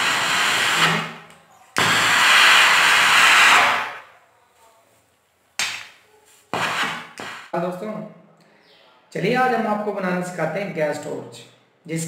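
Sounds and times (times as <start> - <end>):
gas torch hissing: 0.0 - 4.1.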